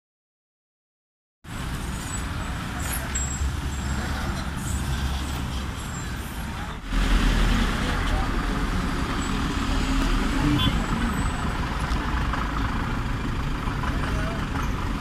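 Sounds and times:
road traffic passing: 1.4s - 15.0s
low engine rumble: 1.5s - 15.0s.

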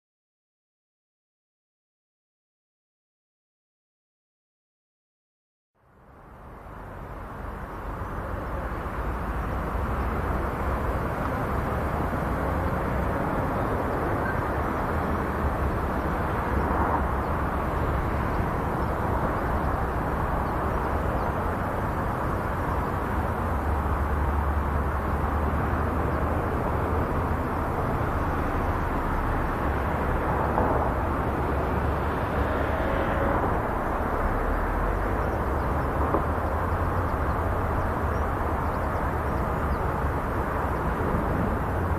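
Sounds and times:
distant tractor engine rumble: 6.0s - 41.9s.

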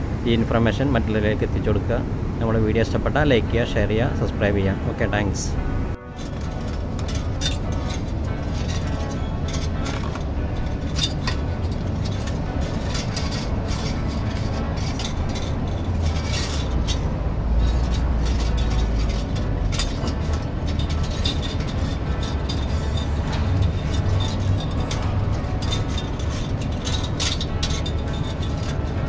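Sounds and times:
low rumble: 4.8s - 29.0s
wire clicking and clinking: 6.1s - 29.0s.

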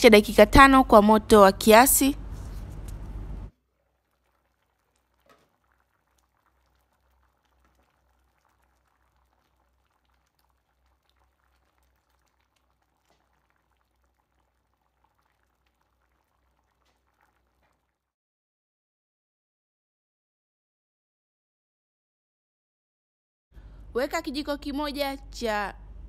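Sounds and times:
low steady hum: 0.0s - 4.2s, 23.6s - 26.0s
beans bubbling in sauce: 2.2s - 18.2s.

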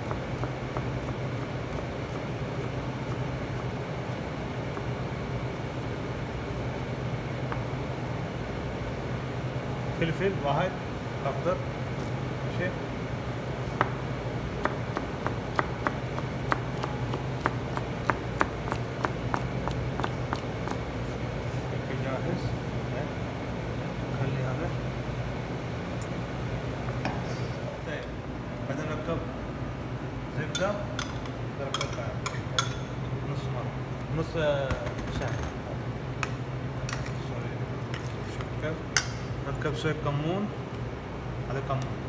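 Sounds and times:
low machine hum: 0.0s - 42.0s
knife chopping on plastic board: 14.6s - 20.8s.

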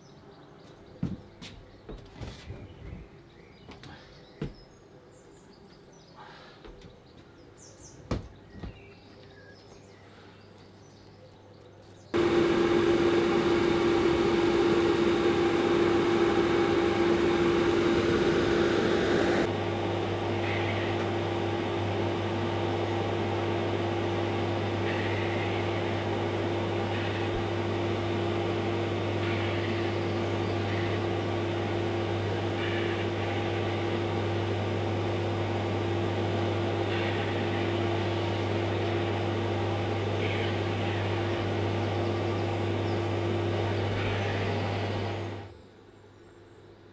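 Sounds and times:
extractor fan humming: 12.1s - 45.6s
deeper hum: 12.2s - 45.5s.

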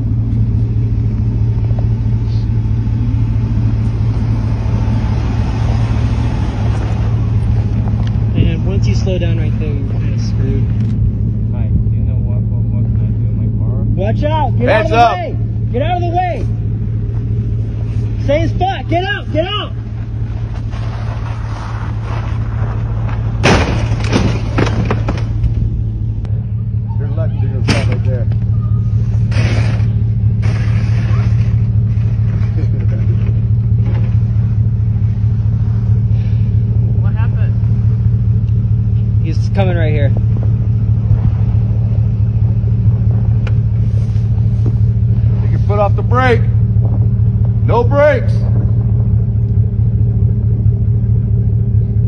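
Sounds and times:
vehicle engine running: 0.0s - 52.0s
car crash impact: 19.9s - 25.9s, 27.6s - 28.4s, 29.0s - 34.5s.

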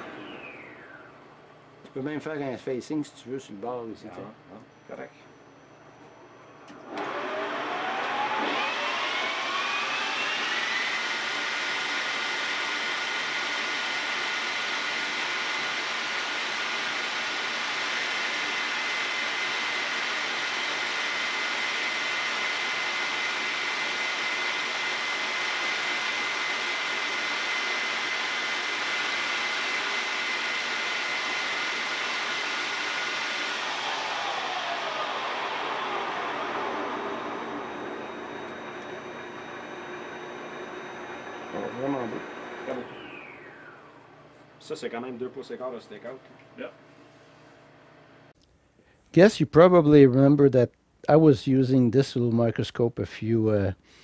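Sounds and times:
metal lathe whine: 0.0s - 1.4s, 6.4s - 44.2s.

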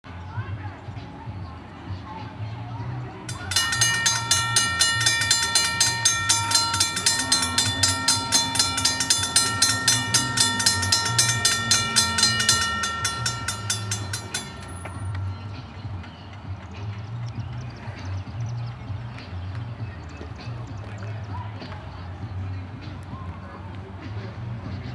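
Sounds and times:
crossing warning bell ringing: 3.3s - 16.1s.

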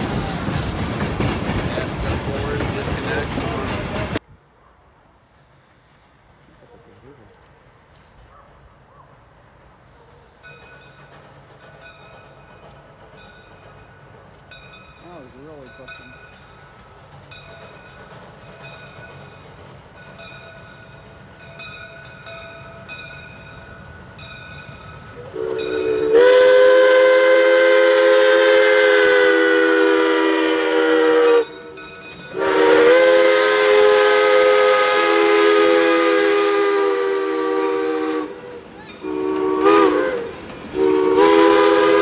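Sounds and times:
steam locomotive chime whistle: 20.2s - 42.0s.

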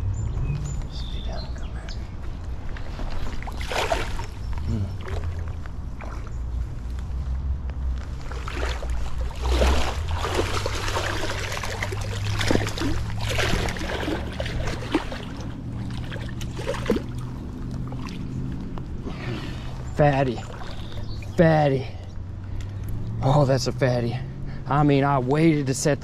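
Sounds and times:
water splashing around wading legs: 2.5s - 7.2s, 7.9s - 21.4s.

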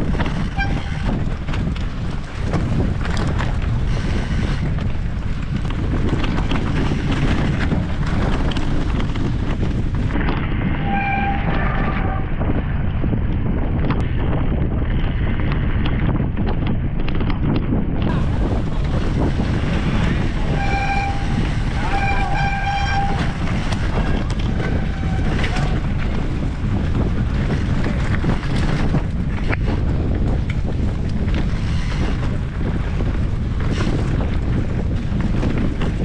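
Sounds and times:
bike rattles and knocks: 0.0s - 36.0s
bike tyres rumbling: 0.0s - 36.0s
wind buffeting microphone: 0.0s - 36.0s.

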